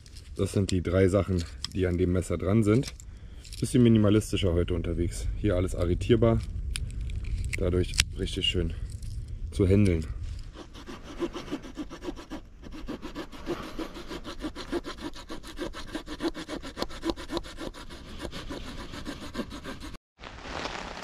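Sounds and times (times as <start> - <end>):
small saw cutting wooden branch: 10.5 - 20.0.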